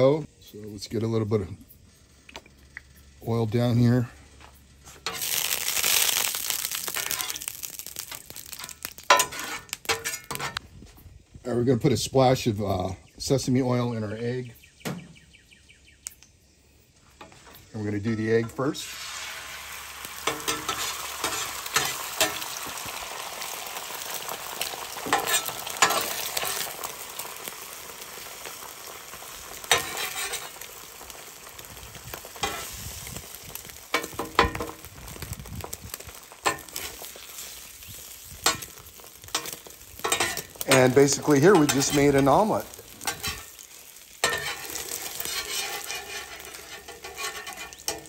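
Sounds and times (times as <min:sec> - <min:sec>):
eggs sizzling in oil: 0:04.8 - 0:10.6, 0:17.3 - 0:48.0
metal spatula scraping griddle: 0:08.5 - 0:10.6, 0:20.2 - 0:22.5, 0:25.0 - 0:26.7, 0:29.7 - 0:30.6, 0:32.4 - 0:32.8, 0:38.4 - 0:43.6, 0:44.2 - 0:48.0.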